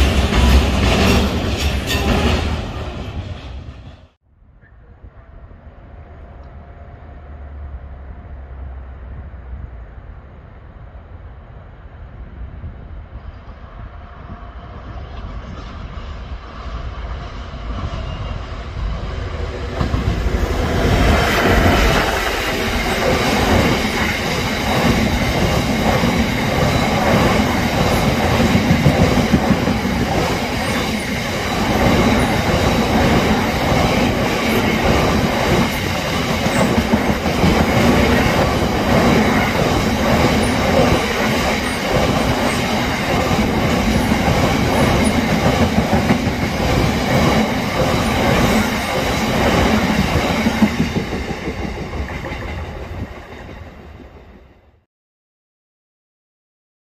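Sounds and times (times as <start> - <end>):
train wheels clattering over rails: 0.0 - 4.1, 19.6 - 53.8.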